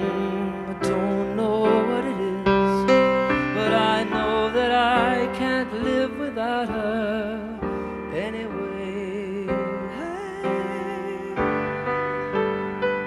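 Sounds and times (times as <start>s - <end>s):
piano chords: 0.0s - 13.0s
person singing long notes: 3.5s - 12.4s.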